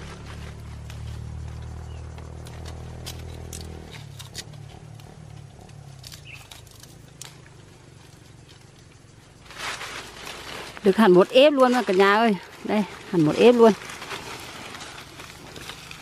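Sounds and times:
dry leaves crunching underfoot: 0:00.0 - 0:16.0
flower stalks snapping: 0:00.8 - 0:07.5, 0:10.0 - 0:16.0.

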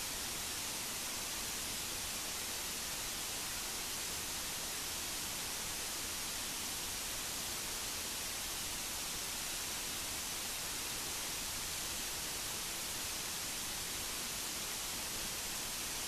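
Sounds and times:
rushing water hiss: 0:00.0 - 0:16.0.

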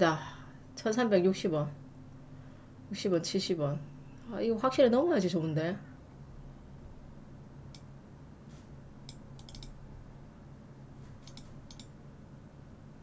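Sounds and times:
low steady hum: 0:00.0 - 0:13.0
computer mouse clicking: 0:09.0 - 0:09.8, 0:11.2 - 0:12.0.

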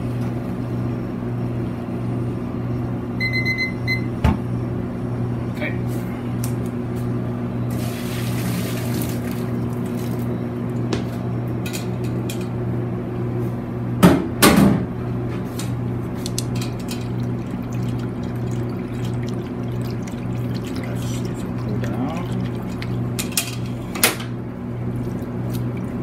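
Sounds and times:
electrical hum: 0:00.0 - 0:26.0
running water: 0:16.0 - 0:24.2, 0:24.9 - 0:26.0
metal clinks and water trickling: 0:16.2 - 0:23.9.

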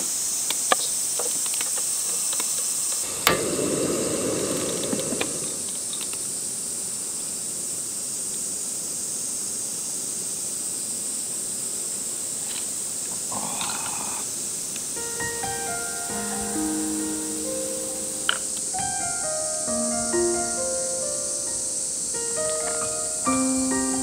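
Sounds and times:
insects buzzing: 0:00.0 - 0:24.0
low rushing noise: 0:03.0 - 0:06.4.

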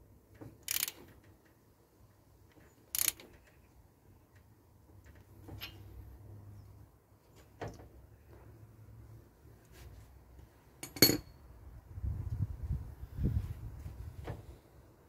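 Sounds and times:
metal parts clinking: 0:10.8 - 0:11.3.

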